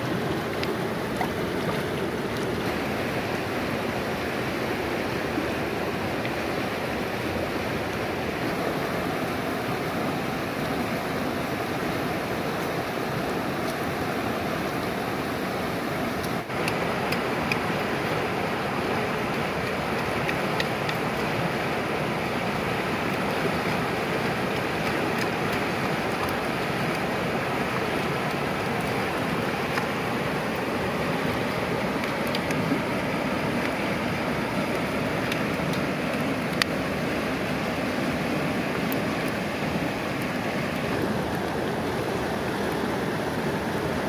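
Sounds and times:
river rapids rushing: 0.0s - 44.0s.

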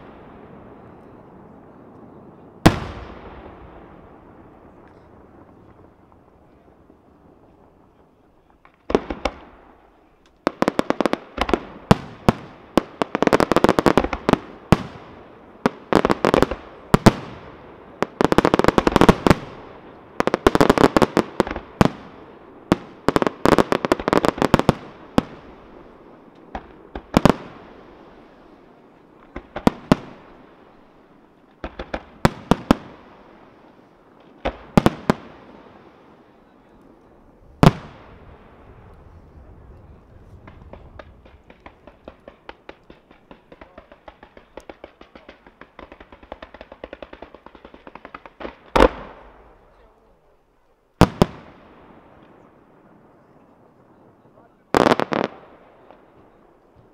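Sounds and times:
firework shells bursting: 40.4s - 49.5s.

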